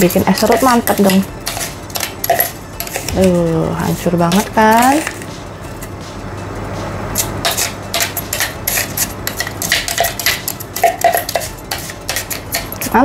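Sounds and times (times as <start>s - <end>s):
metal spoon scraping crushed ice: 0.0s - 5.2s, 7.2s - 13.0s.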